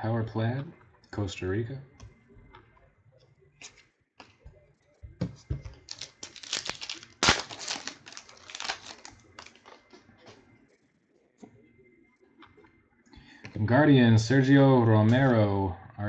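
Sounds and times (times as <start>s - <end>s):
plastic wrapper tearing and crinkling: 5.7s - 10.0s.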